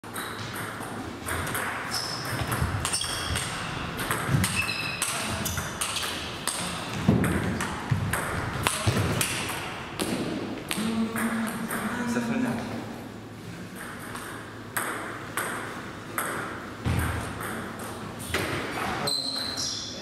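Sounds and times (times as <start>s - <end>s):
shoes squeaking on floor: 1.8s - 6.1s, 18.2s - 20.0s.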